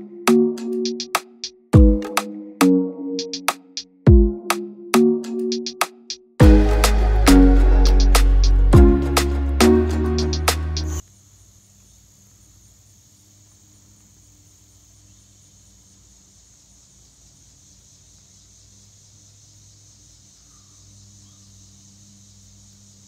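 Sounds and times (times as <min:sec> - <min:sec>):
insect chorus chirring: 0:11.0 - 0:23.0.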